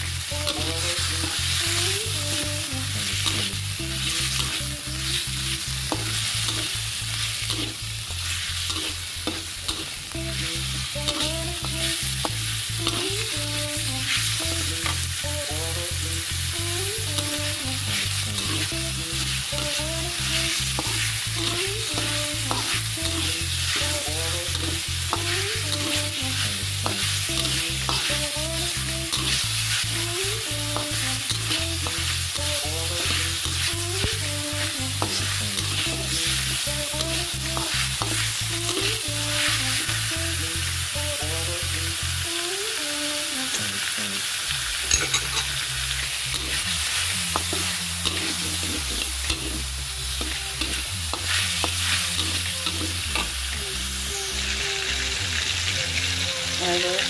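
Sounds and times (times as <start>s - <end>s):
quiet music: 0.0s - 7.8s, 8.6s - 42.2s, 44.9s - 57.0s
onion sizzling in hot oil: 0.0s - 57.0s
metal spatula scraping pan: 7.4s - 7.8s, 8.6s - 10.0s, 17.9s - 18.7s, 44.9s - 45.6s, 47.4s - 49.6s.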